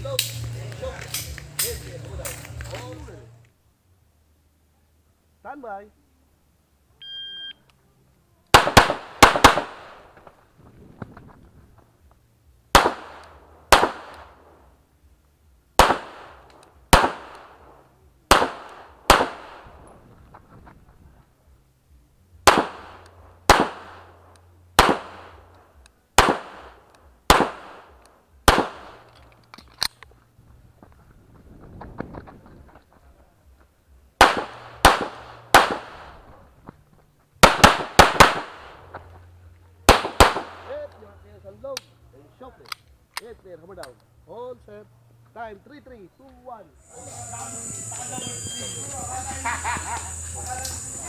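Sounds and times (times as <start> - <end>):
shot timer beep: 7.0 - 7.6
pistol shots: 8.5 - 10.3, 12.7 - 14.4, 15.8 - 17.7, 18.3 - 19.8, 22.4 - 24.2, 24.8 - 25.5, 26.2 - 29.2, 34.2 - 36.2, 37.4 - 38.9, 39.9 - 40.7.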